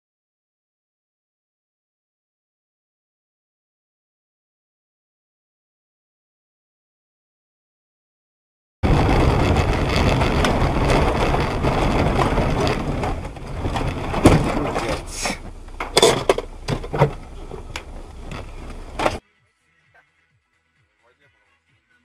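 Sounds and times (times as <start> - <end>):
knocks and crunches: 8.8 - 19.2
rushing road noise: 8.8 - 19.2
vehicle collision impacts: 8.8 - 19.2.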